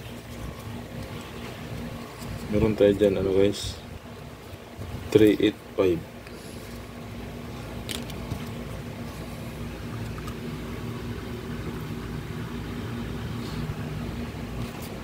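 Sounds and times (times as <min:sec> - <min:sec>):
low background hum and rumble: 0:00.0 - 0:15.0.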